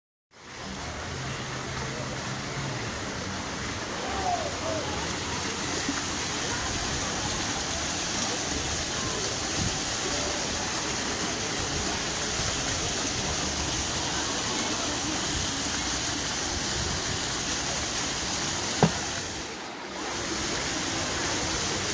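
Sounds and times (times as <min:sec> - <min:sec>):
waterfall splashing into pool: 0:00.4 - 0:21.9.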